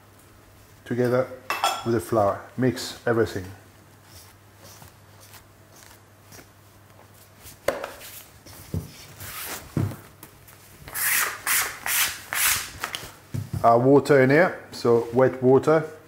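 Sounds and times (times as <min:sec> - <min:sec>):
faint rubbing of flour: 0:02.1 - 0:09.8
rustling: 0:02.5 - 0:11.0.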